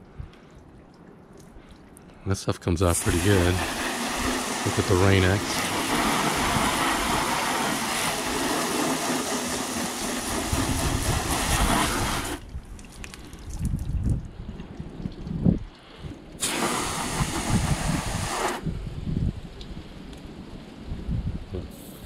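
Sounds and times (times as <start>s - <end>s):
low wind rumbles: 0.0s - 22.0s
hose spray hissing on car: 2.9s - 12.4s, 16.4s - 18.7s, 21.7s - 22.0s.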